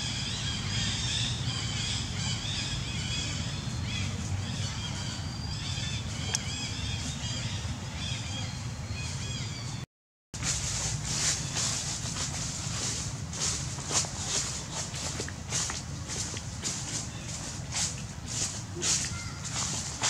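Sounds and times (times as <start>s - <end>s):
steady low rumble: 10.4s - 20.0s.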